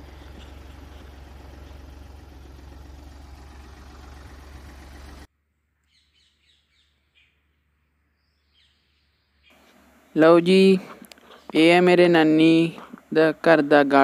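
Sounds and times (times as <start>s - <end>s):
tractor engine humming: 0.0s - 5.3s
faint bird chirps: 5.8s - 9.7s.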